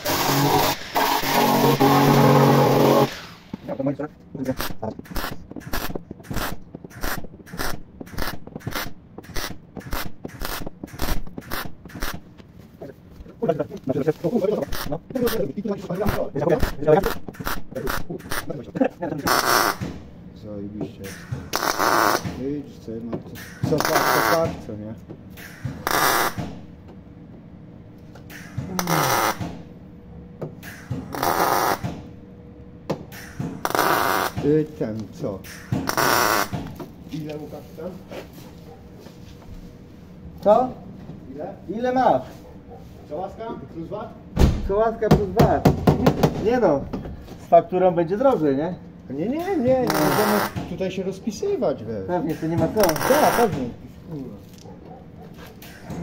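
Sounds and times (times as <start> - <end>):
welder arc crackling bursts: 0.0 - 12.2, 14.5 - 18.6, 21.5 - 22.2.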